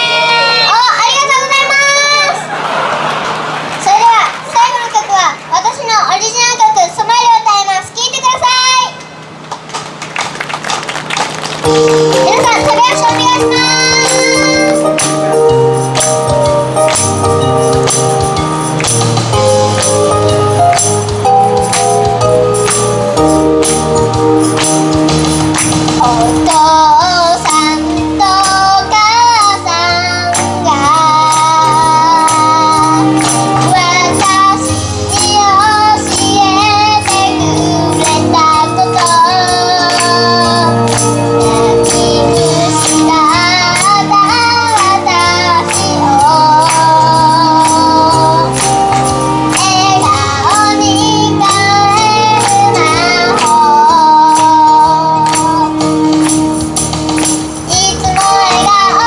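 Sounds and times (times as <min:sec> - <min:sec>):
backing track with steady beat: 0:09.0 - 0:59.0
girl singing pop song: 0:12.0 - 0:16.1, 0:25.7 - 0:56.4, 0:57.2 - 0:59.0.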